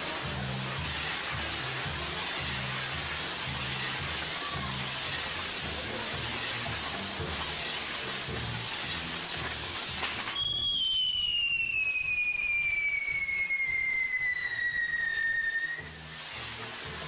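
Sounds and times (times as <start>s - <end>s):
firework crackle: 0.0s - 17.0s
firework whistle sliding down: 9.9s - 16.7s.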